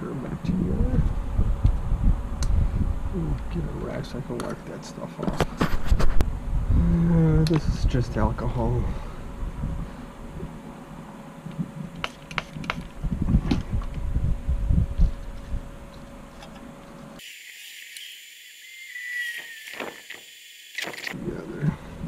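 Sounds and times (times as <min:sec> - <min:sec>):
faint steady hum: 0:00.0 - 0:17.2
thin hiss: 0:17.2 - 0:21.1.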